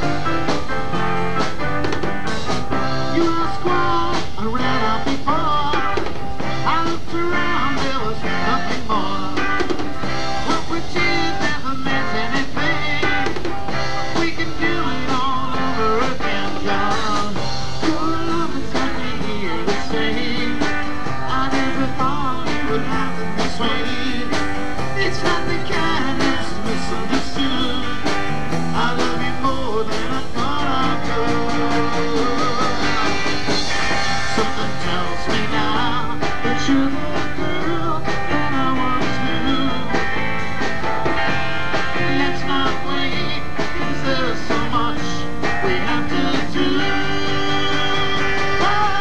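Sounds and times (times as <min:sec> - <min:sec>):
drum kit steady beat: 0:00.0 - 0:49.0
electric guitar: 0:00.0 - 0:49.0.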